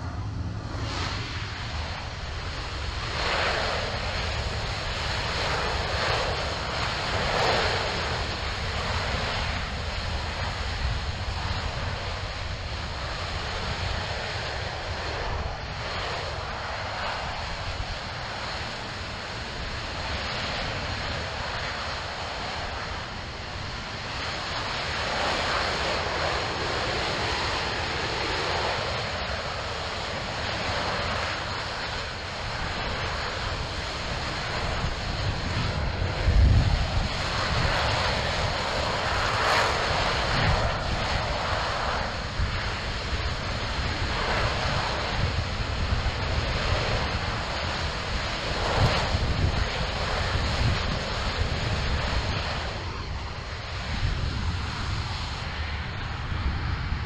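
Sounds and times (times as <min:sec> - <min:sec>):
deep rumble: 0:00.0 - 0:04.6.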